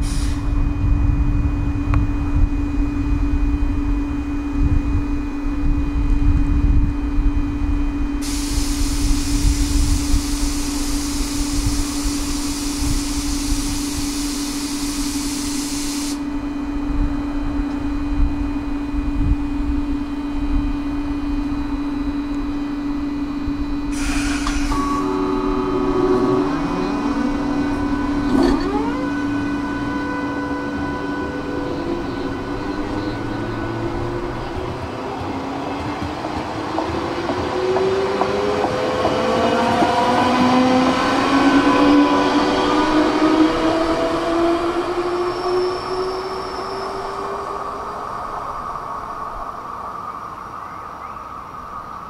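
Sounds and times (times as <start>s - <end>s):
air hiss: 0.0s - 0.5s, 8.2s - 16.2s, 23.9s - 25.0s
train traction motors whining: 0.0s - 49.6s
electric train humming: 0.0s - 52.0s.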